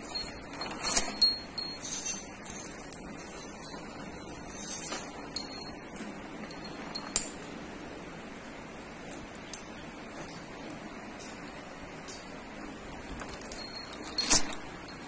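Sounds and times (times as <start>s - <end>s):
metal chain jingling: 0.0s - 7.5s, 13.2s - 15.0s.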